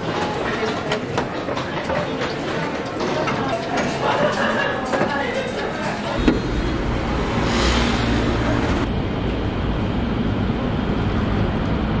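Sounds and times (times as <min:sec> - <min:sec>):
street traffic rumble: 0:06.2 - 0:12.0.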